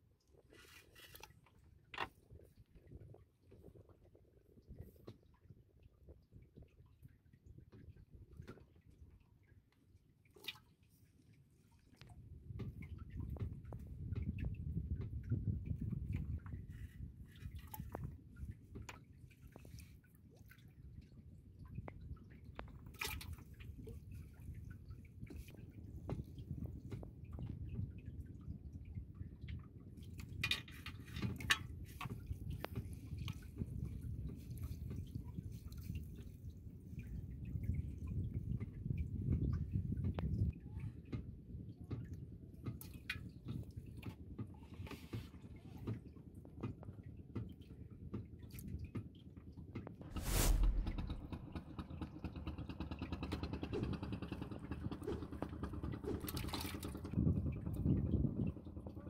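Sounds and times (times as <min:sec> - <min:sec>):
water dripping off a net: 0:10.3 - 0:10.7
steady low rumble: 0:50.0 - 0:51.8.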